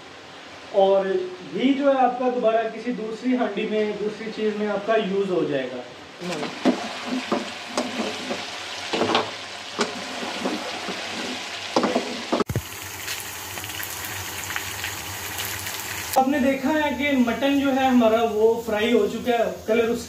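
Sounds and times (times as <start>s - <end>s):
meat sizzling in hot oil: 6.3s - 20.0s.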